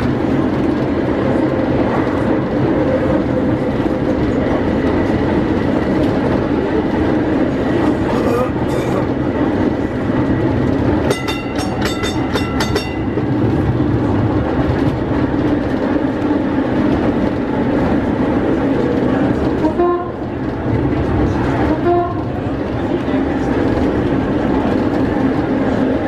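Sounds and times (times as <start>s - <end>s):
tram rumbling on rails: 0.0s - 26.0s
warning bell ringing: 11.1s - 13.1s.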